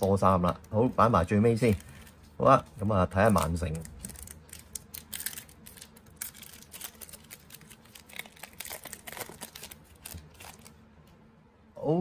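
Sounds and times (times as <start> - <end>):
wrapper tearing and crinkling: 3.2 - 10.8.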